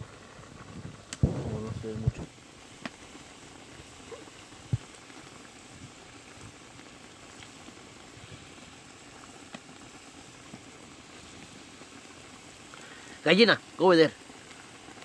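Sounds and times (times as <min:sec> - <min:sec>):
water boiling with bubbling hiss: 0:00.0 - 0:15.0
small pops: 0:01.0 - 0:03.1, 0:09.2 - 0:09.7.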